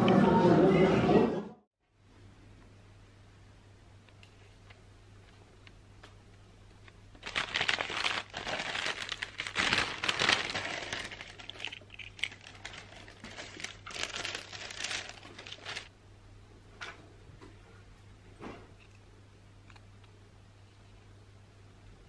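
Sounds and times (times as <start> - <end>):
paper and card rustling: 7.2 - 15.9
paper bag crinkling and rustling: 7.2 - 15.9.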